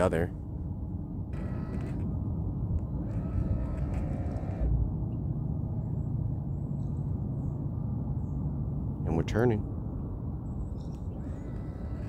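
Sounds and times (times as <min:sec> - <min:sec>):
electric trolling motor rumble: 0:01.0 - 0:05.4, 0:10.8 - 0:12.0.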